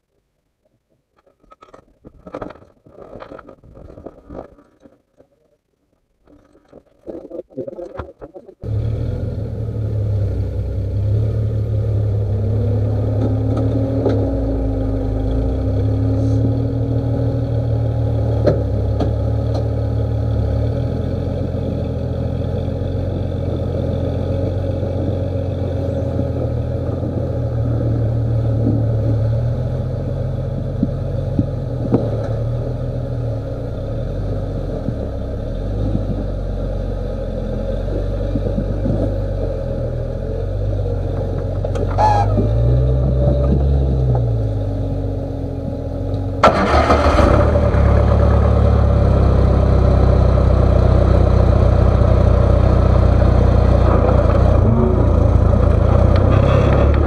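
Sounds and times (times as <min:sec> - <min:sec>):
buggy engine running at low revs: 0:08.6 - 0:57.0.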